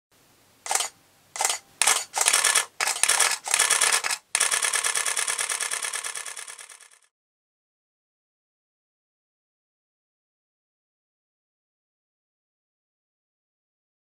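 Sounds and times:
camera shutter firing: 0.7s - 7.1s.

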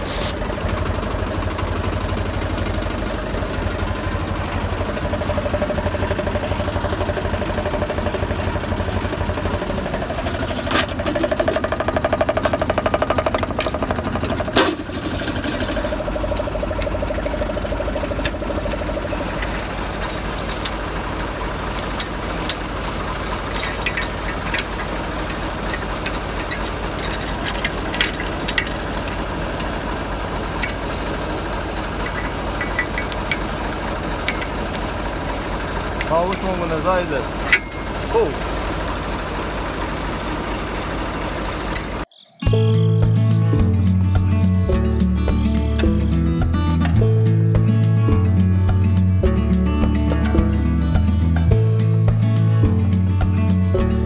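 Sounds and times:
tractor diesel engine idling: 0.0s - 54.0s
metal pins clinking: 9.9s - 38.8s, 41.5s - 42.4s.

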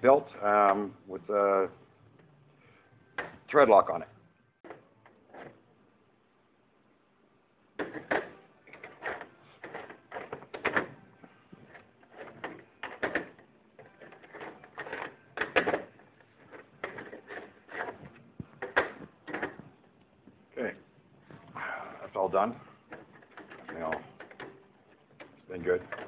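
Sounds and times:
plastic and metal parts clattering: 11.7s - 19.7s, 22.9s - 26.0s.

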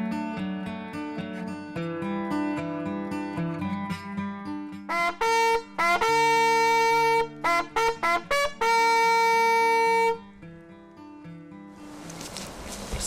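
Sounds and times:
brass hunting horn call: 4.9s - 10.4s.

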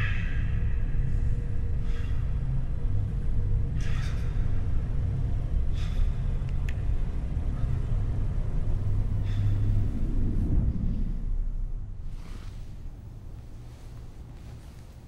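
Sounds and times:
low rumbling drone: 0.0s - 15.0s.

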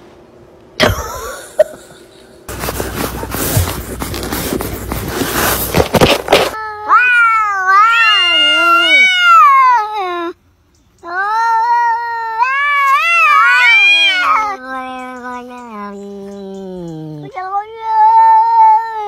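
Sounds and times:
cat meowing: 6.6s - 10.1s, 11.1s - 19.0s.

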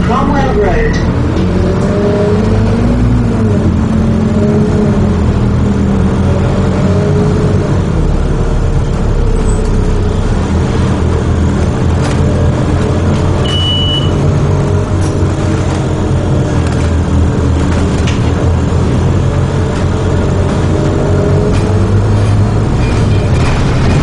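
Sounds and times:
bus diesel engine drone: 0.0s - 24.0s
short high beep: 13.4s - 14.2s.

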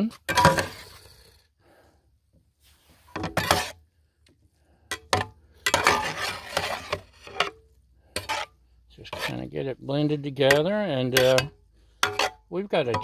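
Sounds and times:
metal spatula scraping a pan: 0.0s - 1.3s, 2.9s - 3.9s, 4.9s - 13.0s.

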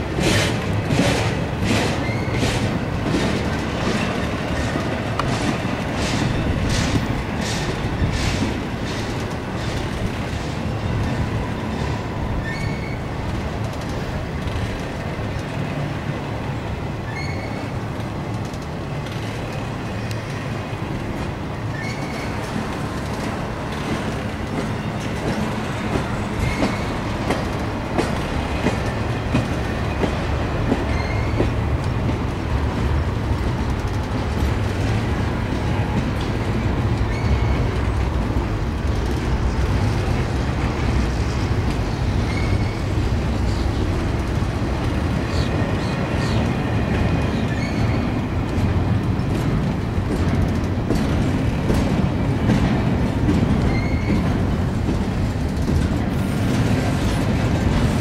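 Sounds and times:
freight train wheels rumbling: 0.0s - 58.0s
high wheel squeaks: 1.7s - 2.8s, 11.7s - 13.2s, 17.1s - 17.7s, 21.6s - 22.6s, 25.9s - 27.2s, 28.7s - 31.5s, 36.6s - 37.9s, 42.1s - 43.7s, 47.2s - 48.2s, 53.5s - 54.4s.

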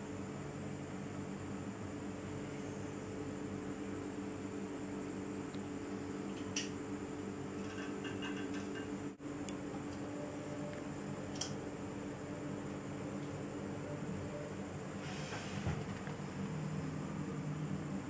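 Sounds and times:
faint high whine: 0.0s - 18.0s
low electrical hum: 0.0s - 18.0s
hiss: 15.0s - 16.0s.

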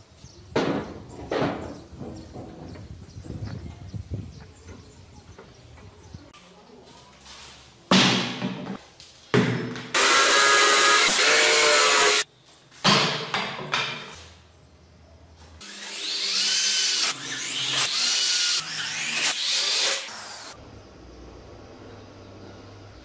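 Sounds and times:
drill driving screws: 10.0s - 12.2s, 15.6s - 20.6s
power tool bursts: 10.0s - 12.2s, 15.6s - 20.6s.

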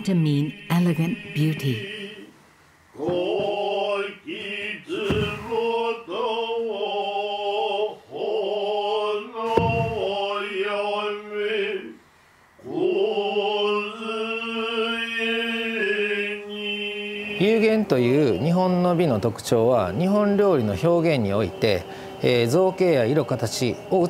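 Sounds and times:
men chanting: 0.0s - 2.3s, 3.0s - 12.0s, 12.6s - 24.0s.

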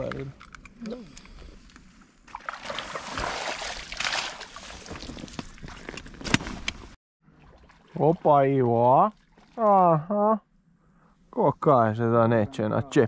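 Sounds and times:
water splashing: 2.3s - 5.7s, 7.3s - 9.9s.

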